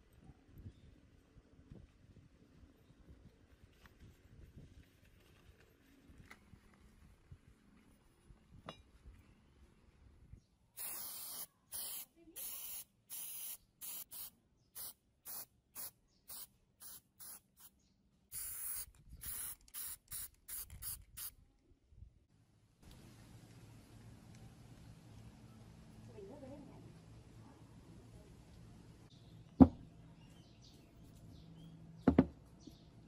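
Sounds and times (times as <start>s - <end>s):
spray paint can hissing: 10.8s - 17.7s, 18.3s - 21.3s.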